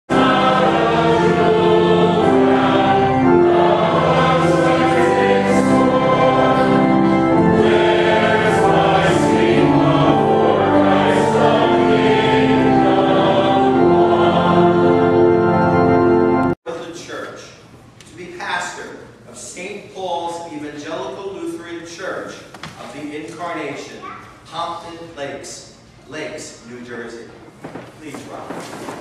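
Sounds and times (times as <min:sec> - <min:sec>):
choir singing in parts: 0:00.1 - 0:16.6.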